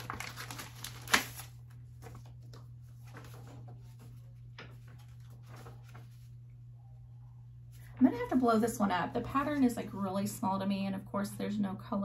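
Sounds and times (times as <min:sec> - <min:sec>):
paper rustling: 0:00.0 - 0:06.5
steady low hum: 0:01.4 - 0:12.0.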